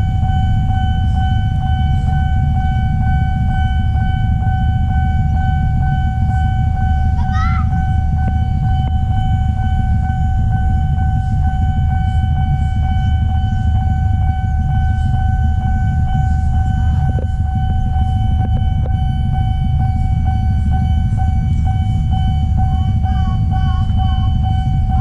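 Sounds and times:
level crossing alarm tone: 0.0s - 25.0s
low rumble: 0.0s - 25.0s.

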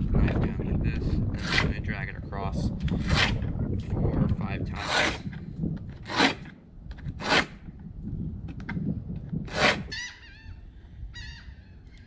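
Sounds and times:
knife scraping through sharpener: 4.8s - 5.3s, 6.0s - 6.5s, 7.2s - 7.6s, 9.5s - 10.0s.

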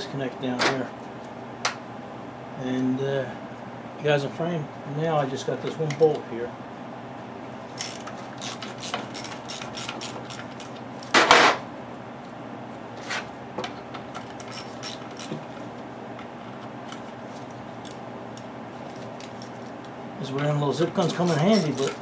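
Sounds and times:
wrench clicking on metal: 7.8s - 10.7s, 21.0s - 22.0s.

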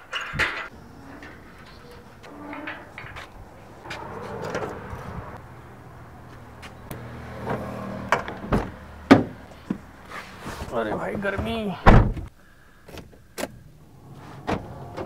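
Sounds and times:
metal gate clanking: 0.0s - 5.0s
car door opening: 7.4s - 9.8s, 14.3s - 15.0s.

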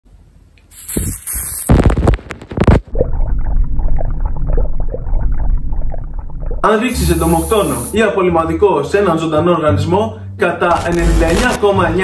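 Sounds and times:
spray bottle hissing: 0.7s - 1.7s, 6.9s - 8.0s
steady low rumble: 2.9s - 6.7s.

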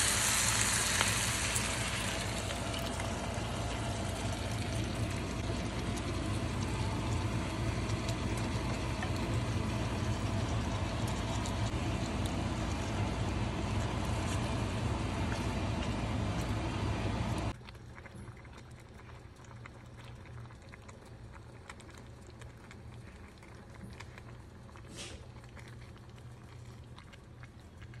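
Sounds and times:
low hum: 0.0s - 17.6s
sauce sizzling in a wok: 0.0s - 17.6s
quiet simmer with crackles: 0.0s - 28.0s.

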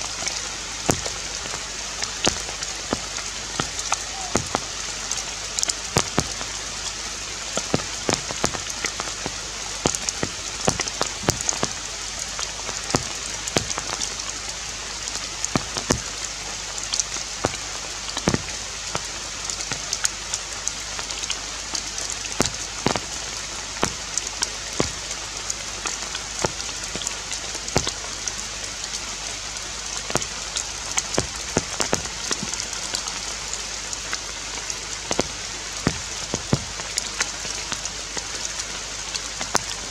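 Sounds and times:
steady forest hiss: 0.0s - 39.9s
sharp taps and clicks: 0.9s - 1.6s, 2.2s - 4.7s, 5.5s - 6.5s, 7.6s - 12.0s, 12.6s - 14.1s, 15.5s - 16.2s, 16.9s - 17.6s, 18.2s - 19.1s, 22.4s - 23.2s, 23.8s - 25.1s, 25.8s - 28.1s, 30.1s - 30.4s, 31.0s - 33.2s, 35.1s - 37.9s.

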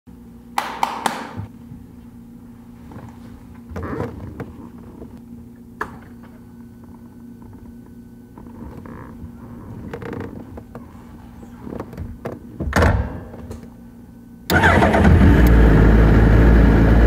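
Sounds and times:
ignition click: 14.5s - 15.6s.

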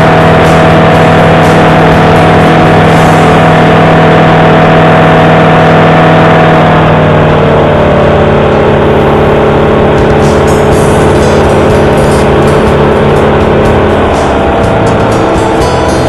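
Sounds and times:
aircraft engine and propeller drone: 0.0s - 16.0s.

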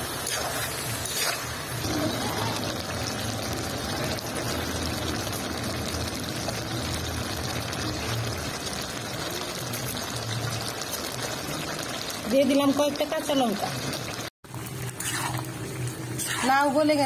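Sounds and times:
metal spatula scraping pan: 0.0s - 2.6s, 14.9s - 15.5s, 16.1s - 16.9s
curry sizzling and bubbling: 0.0s - 17.0s.

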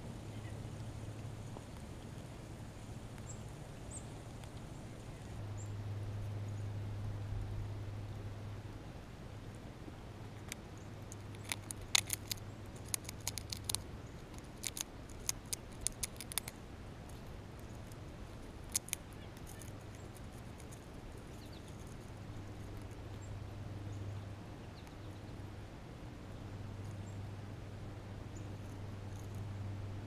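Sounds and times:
squirrel cracking nut shell: 10.4s - 23.2s.

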